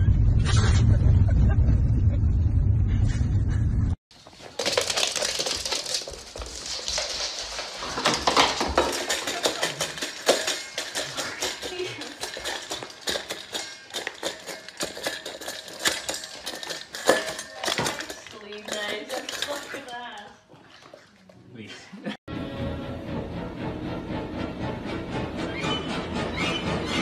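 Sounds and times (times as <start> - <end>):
dog eating from metal bowl: 4.2 - 21.4.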